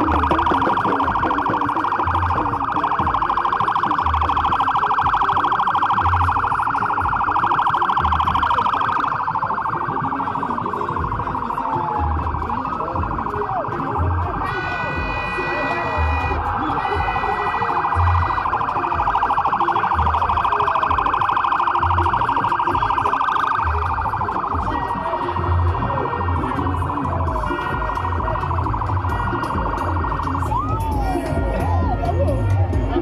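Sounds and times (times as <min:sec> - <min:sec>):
motorcycle siren warbling: 0:00.0 - 0:33.0.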